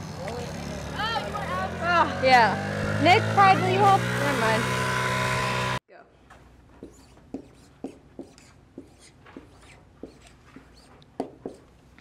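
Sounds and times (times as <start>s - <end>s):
marker writing on whiteboard: 6.8s - 11.7s.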